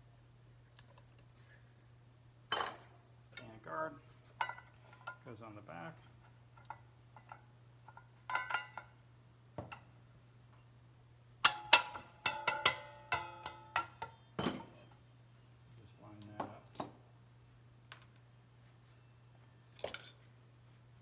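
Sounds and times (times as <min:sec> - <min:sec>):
sharp metal knocks and clacks: 0:11.4 - 0:14.2.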